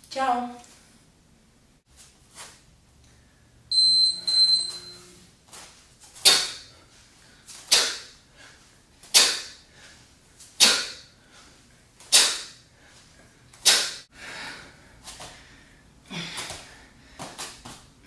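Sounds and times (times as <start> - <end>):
electronic timer beeps: 3.7 - 5.2
kettlebell swing hiss: 5.6 - 6.8, 7.4 - 11.2, 12.0 - 14.1.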